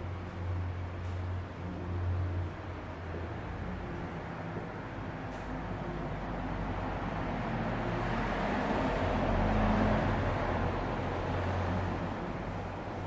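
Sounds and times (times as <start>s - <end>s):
low traffic hum: 0.0s - 13.0s
vehicle passing: 6.1s - 13.0s.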